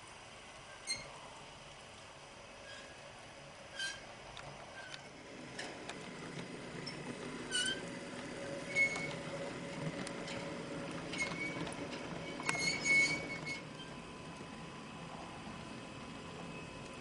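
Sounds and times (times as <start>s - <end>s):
faint motor hum: 0.0s - 17.0s
short high squeaks: 0.7s - 1.2s, 2.6s - 3.0s, 3.7s - 4.1s, 6.9s - 7.9s, 8.7s - 9.2s, 12.2s - 14.0s
model train wheels rumbling on rail: 2.6s - 17.0s.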